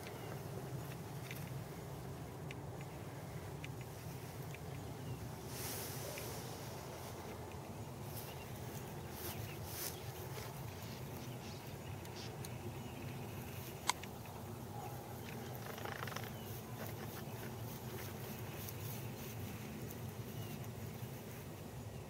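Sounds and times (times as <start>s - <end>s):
light rustles and ticks: 0.0s - 22.0s.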